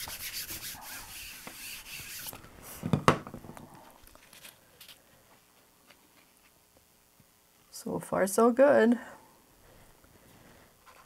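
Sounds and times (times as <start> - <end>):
baren rubbing over paper: 0.0 - 2.8
faint paper rustling: 3.7 - 6.6.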